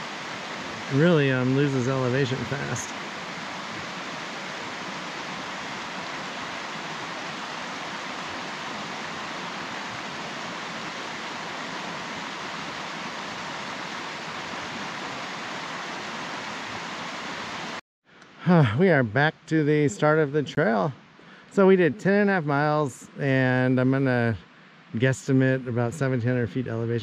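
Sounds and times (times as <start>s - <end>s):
river rushing over rocks: 0.0s - 17.8s.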